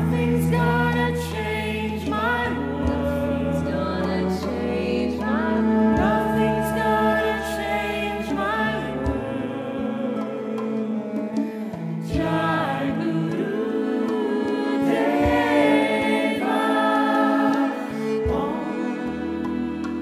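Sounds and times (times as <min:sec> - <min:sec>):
choir singing in harmony: 0:00.0 - 0:20.0.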